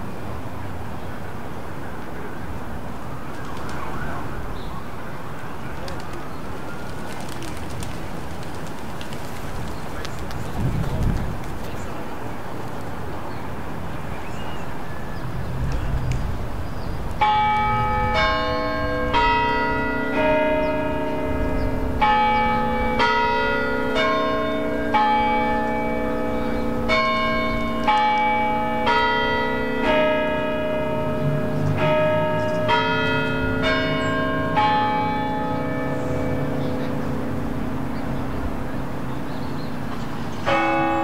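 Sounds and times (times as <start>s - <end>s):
tower bells ringing: 17.2s - 38.0s, 40.4s - 41.0s.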